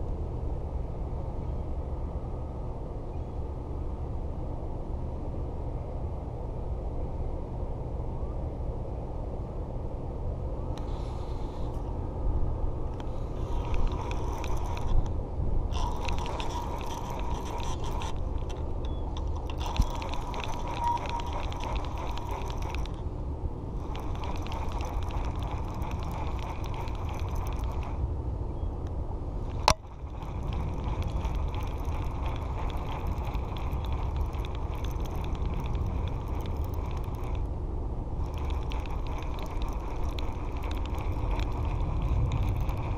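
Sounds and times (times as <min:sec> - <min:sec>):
fishing reel clicking: 0:13.0 - 0:15.1, 0:15.7 - 0:23.0, 0:23.8 - 0:28.0, 0:29.4 - 0:37.5, 0:38.2 - 0:42.9.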